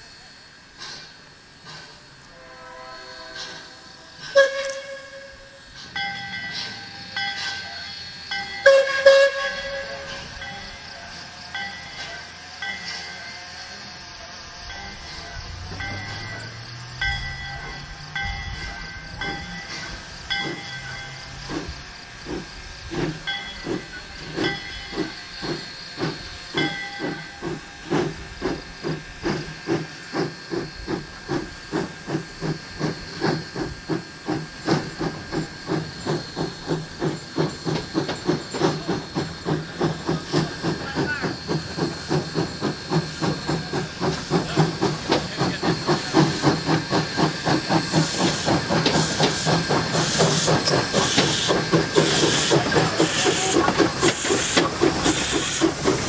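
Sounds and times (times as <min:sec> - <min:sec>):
steam locomotive chuffing: 0:00.0 - 0:56.0.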